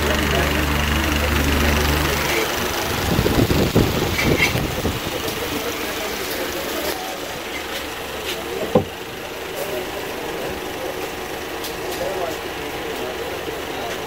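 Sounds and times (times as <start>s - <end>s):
busy market noise: 0.0s - 14.0s
distant traffic: 0.0s - 14.0s
knocks and clatter: 8.6s - 9.1s.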